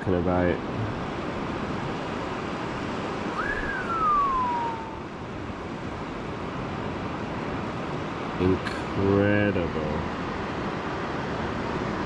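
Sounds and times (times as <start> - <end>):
surf rushing: 0.0 - 12.0
wind: 0.0 - 12.0
whistled note: 3.4 - 5.1.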